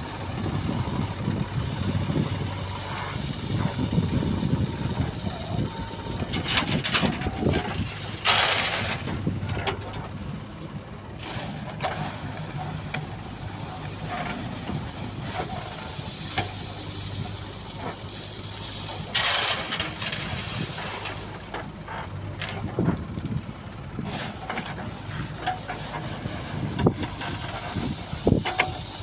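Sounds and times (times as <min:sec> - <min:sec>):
diesel engine running: 0:00.0 - 0:29.0
stone chips pouring into metal trolley: 0:03.2 - 0:09.1, 0:15.9 - 0:21.5, 0:27.6 - 0:29.0.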